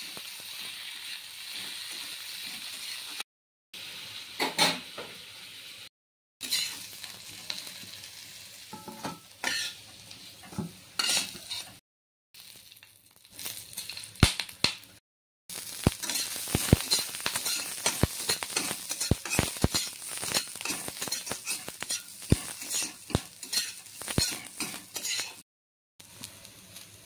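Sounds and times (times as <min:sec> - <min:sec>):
chillies sizzling in hot oil: 0:00.0 - 0:03.2, 0:03.8 - 0:11.8, 0:12.4 - 0:25.4, 0:26.0 - 0:27.0
metal spatula scraping pan: 0:06.4 - 0:06.9, 0:08.7 - 0:11.8, 0:16.0 - 0:25.4.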